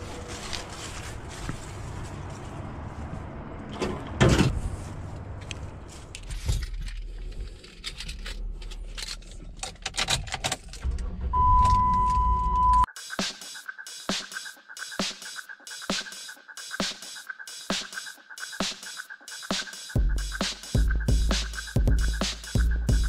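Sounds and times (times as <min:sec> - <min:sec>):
truck engine rumbling: 0:00.0 - 0:12.8
keys jingling and clicking: 0:06.2 - 0:10.8
steady beep: 0:11.4 - 0:12.9.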